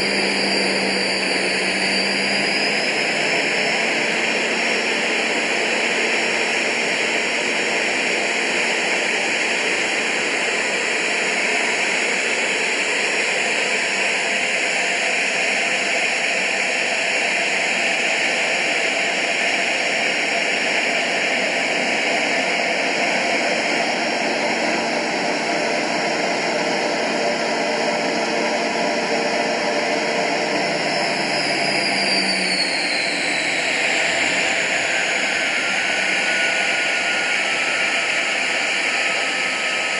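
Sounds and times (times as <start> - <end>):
engine whine: 0.0 - 39.9
jet engine noise in cockpit: 0.0 - 39.9.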